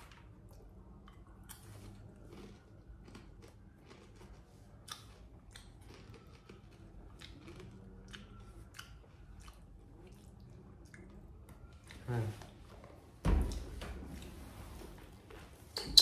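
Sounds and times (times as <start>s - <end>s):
potato chips crunching: 1.6s - 7.9s.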